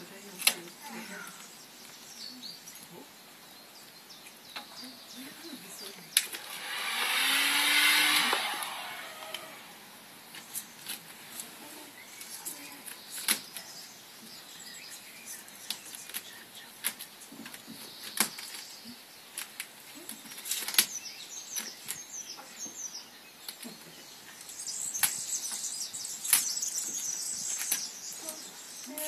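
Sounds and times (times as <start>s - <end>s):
birds chirping: 0.0s - 29.0s.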